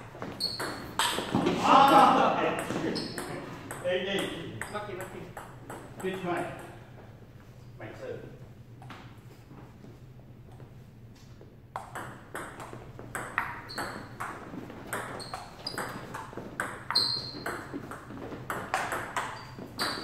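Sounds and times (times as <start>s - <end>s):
ping-pong ball clicking: 11.8s - 20.0s.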